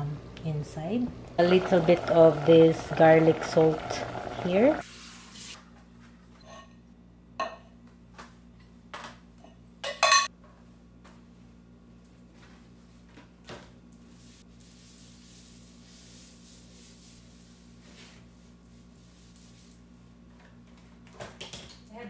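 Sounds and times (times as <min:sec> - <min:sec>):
kitchenware clinking and knocking: 0:09.8 - 0:10.3.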